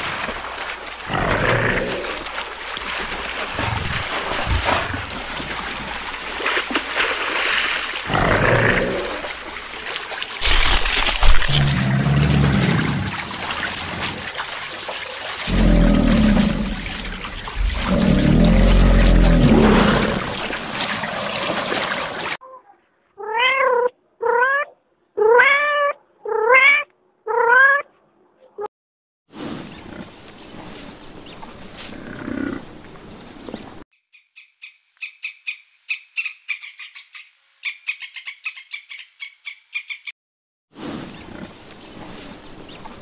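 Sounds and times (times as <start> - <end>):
cat meowing: 23.2 - 27.8
outdoor background noise: 29.3 - 40.1.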